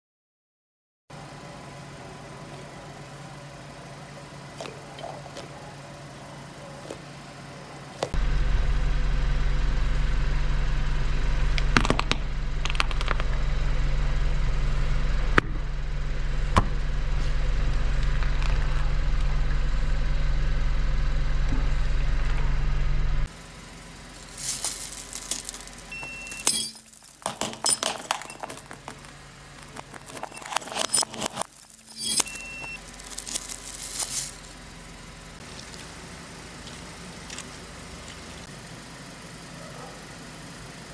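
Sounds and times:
car engine idling: 1.2s - 40.9s
plate and candy crunching under tyre: 24.2s - 34.5s.

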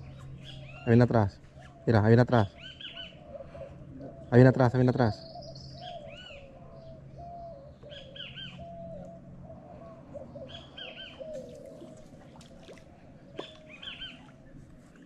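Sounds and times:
birds low short notes: 0.0s - 15.0s
low steady hum: 0.0s - 15.0s
high arching bird chirps: 13.4s - 14.3s.

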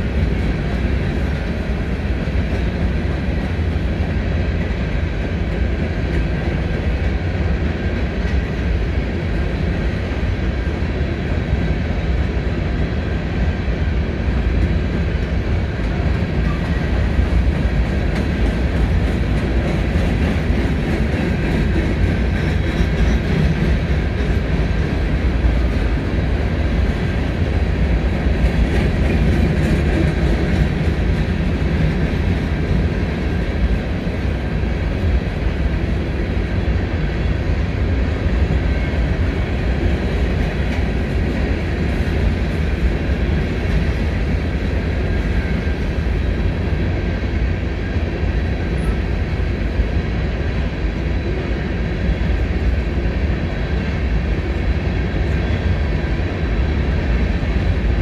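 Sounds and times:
freight train wheels rumbling on rails: 0.0s - 58.0s.

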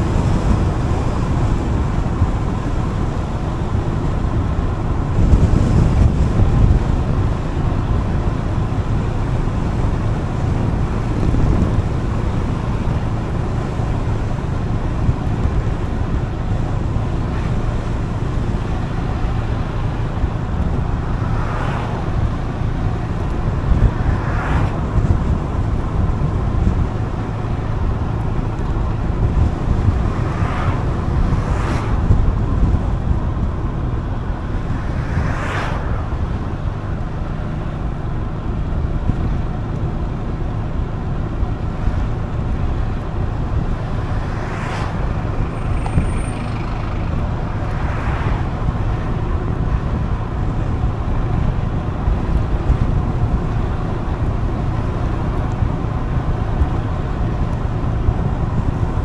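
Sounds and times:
rushes of air: 0.0s - 39.6s, 41.4s - 59.0s
road and wind noise: 0.0s - 59.0s
scooter engine running: 45.3s - 47.5s.

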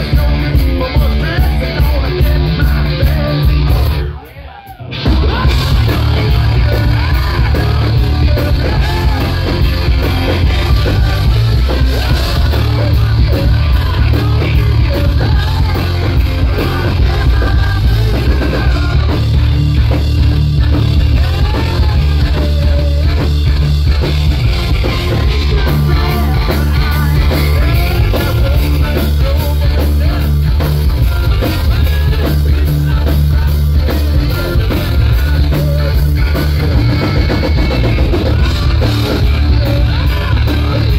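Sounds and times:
hard rock band playing: 0.0s - 40.9s
man singing: 0.0s - 40.9s.

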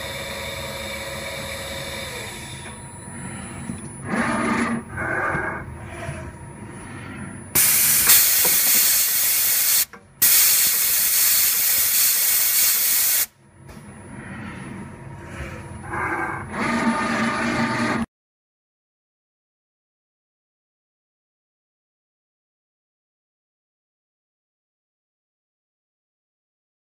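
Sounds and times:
grinder axis drives whining: 0.0s - 9.2s, 13.6s - 18.1s
loud hissing bursts: 7.6s - 13.3s.

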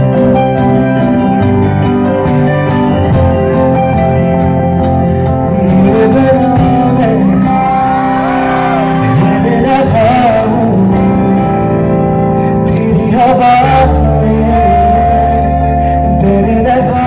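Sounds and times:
live band playing: 0.0s - 17.0s
man singing: 5.2s - 17.0s.

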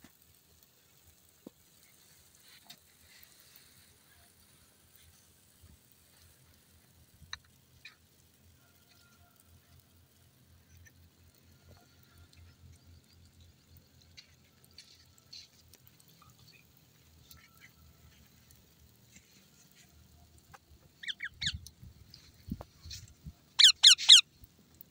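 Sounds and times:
parakeet screeching calls: 21.0s - 21.6s, 23.6s - 24.2s.

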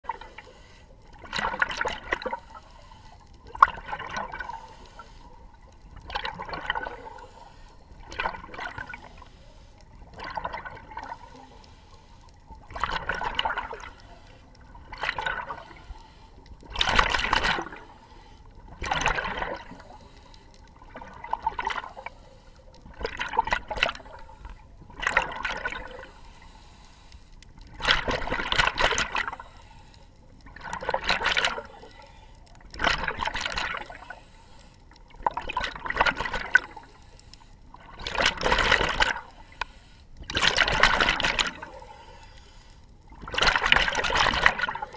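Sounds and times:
diver breathing through regulator: 0.2s - 1.2s, 4.4s - 5.5s, 6.8s - 8.0s, 11.0s - 12.4s, 15.4s - 16.6s, 19.6s - 20.7s, 21.8s - 23.0s, 25.8s - 27.4s, 33.8s - 35.0s, 36.7s - 37.8s, 39.2s - 40.2s, 41.6s - 42.9s.

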